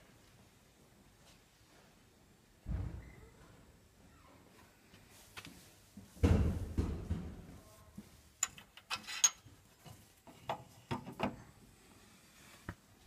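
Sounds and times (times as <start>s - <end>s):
metallic clinks and rattles: 8.4s - 9.5s.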